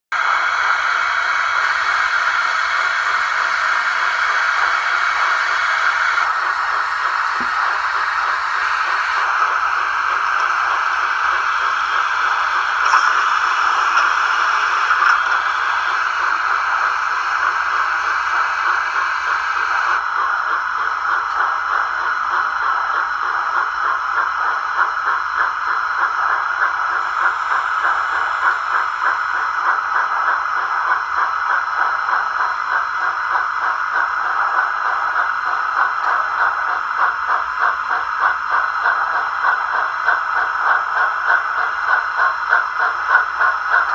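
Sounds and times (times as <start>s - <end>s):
model steam locomotive chuffing: 0.1s - 43.9s
bright high hiss: 10.5s - 16.5s.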